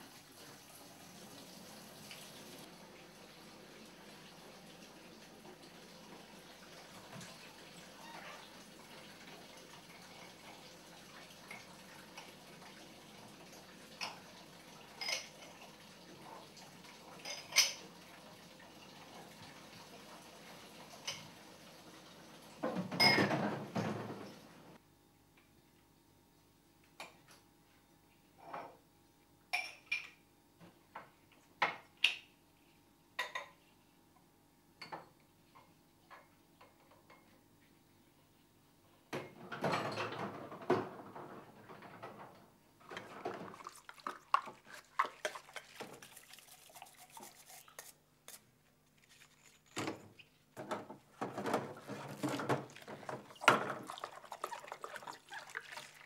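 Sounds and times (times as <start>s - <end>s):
dishes clattering: 15.0s - 15.6s, 17.2s - 17.8s, 22.6s - 24.3s, 39.2s - 46.2s, 49.4s - 56.0s
glass and crockery clinking: 17.2s - 17.8s, 22.9s - 23.6s
water splashing in a sink: 42.8s - 56.0s.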